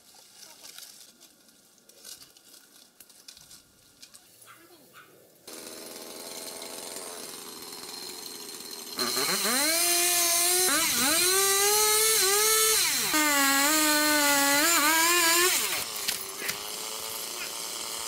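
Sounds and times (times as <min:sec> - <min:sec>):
chainsaw revving and cutting: 0:05.5 - 0:18.0.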